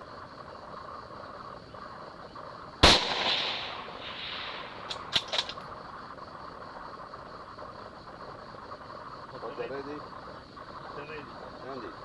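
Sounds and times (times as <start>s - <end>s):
rifle shot with echo: 2.8s - 5.5s
sharp clicks: 4.4s - 5.6s.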